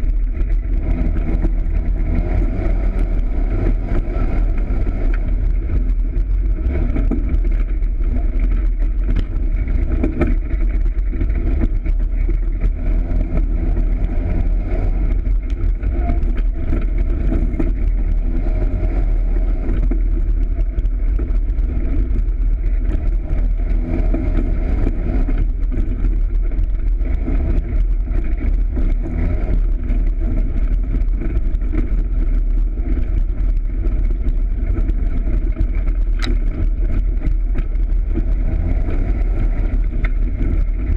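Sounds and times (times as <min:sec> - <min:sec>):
engine running: 0:00.0 - 0:40.9.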